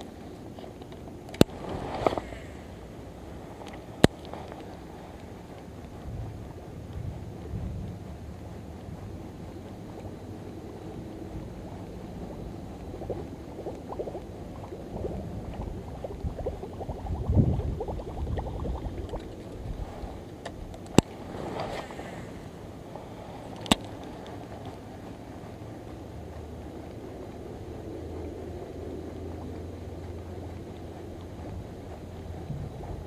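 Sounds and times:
wind on microphone: 1.0 - 33.0
sharp clicks: 23.4 - 33.0.

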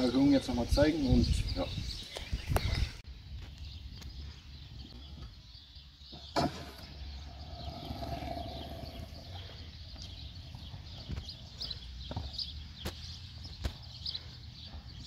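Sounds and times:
scooter landing clack: 6.2 - 6.9.

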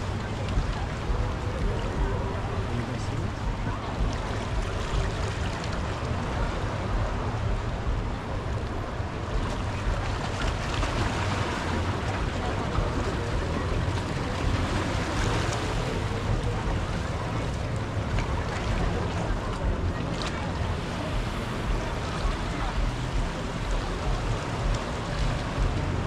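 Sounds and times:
ocean surf on beach: 0.0 - 26.0
wind buffeting microphone: 0.0 - 26.0.

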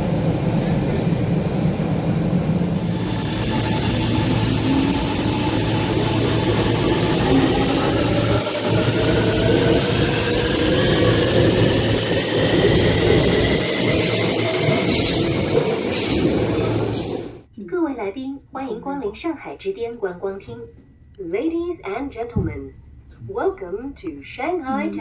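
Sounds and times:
train rumble: 0.0 - 17.5.

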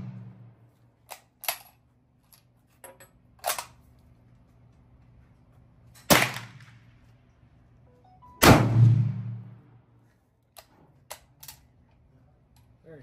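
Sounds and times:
rifle shot: 0.0 - 0.5, 6.1 - 6.8, 8.4 - 9.6.

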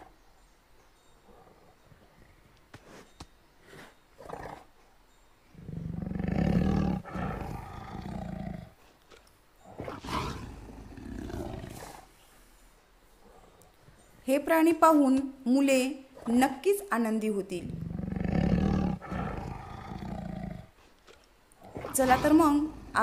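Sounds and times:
tiger growls: 1.0 - 4.8, 5.4 - 12.4, 13.1 - 14.3, 17.6 - 23.0
tiger roar: 5.5 - 8.9, 9.6 - 12.2, 17.6 - 20.8, 21.6 - 23.0.

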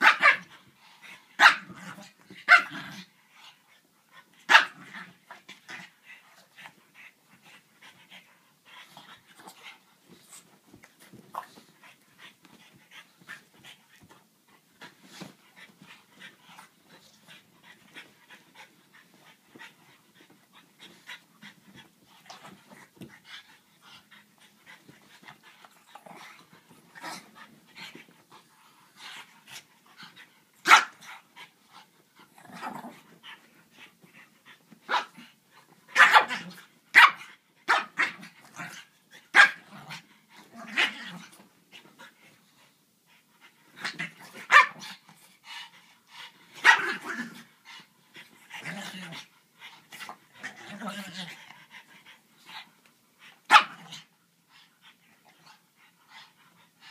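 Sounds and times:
dogs scuffling and panting: 0.0 - 56.9
small dogs barking: 44.5 - 44.8.

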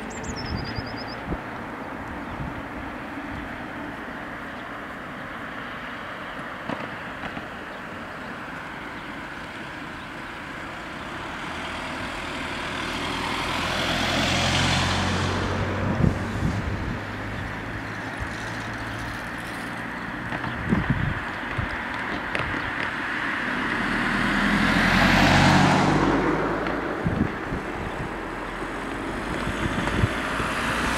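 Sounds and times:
car driving past: 11.2 - 20.0, 23.0 - 27.0, 28.0 - 30.9.

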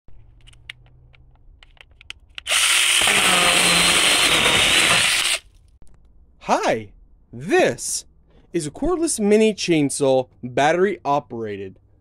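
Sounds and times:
chainsaw cutting board: 2.4 - 5.5
mini chainsaw whining: 2.5 - 5.4.

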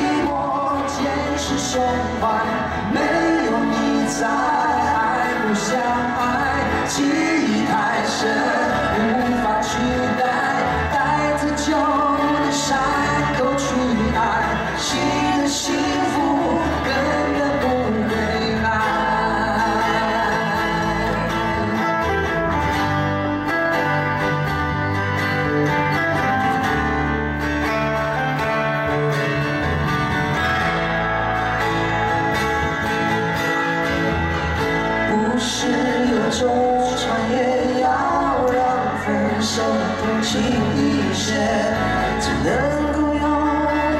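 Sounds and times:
man singing: 0.0 - 22.6, 35.0 - 43.9
acoustic guitars playing: 0.0 - 43.9.

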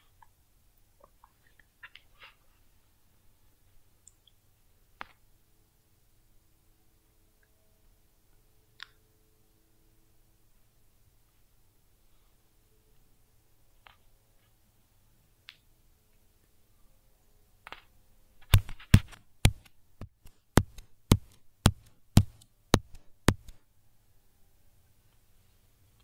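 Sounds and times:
sharp knocks: 18.4 - 23.6.

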